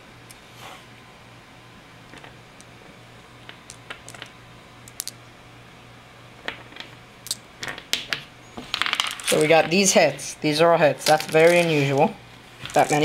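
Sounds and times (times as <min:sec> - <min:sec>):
steady low hum: 0:00.0 - 0:13.0
dice clicking: 0:03.5 - 0:04.3, 0:04.9 - 0:05.2.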